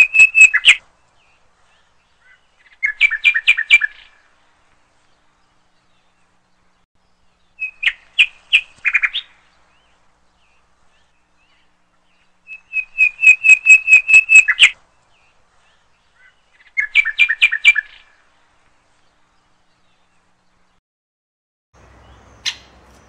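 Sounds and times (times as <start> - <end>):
hornbill calling: 11.4 - 14.8, 22.0 - 23.0.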